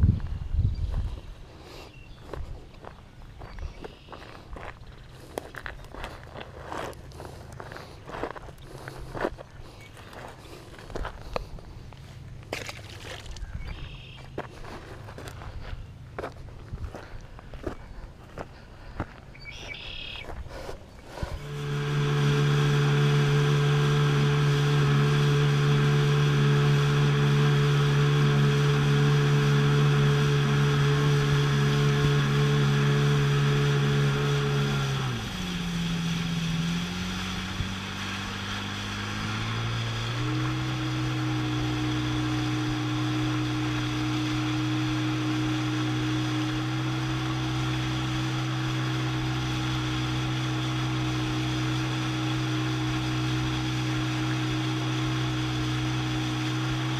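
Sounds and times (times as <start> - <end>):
jet ski engine running: 1.5 - 56.9
water and wind hiss: 20.4 - 56.9.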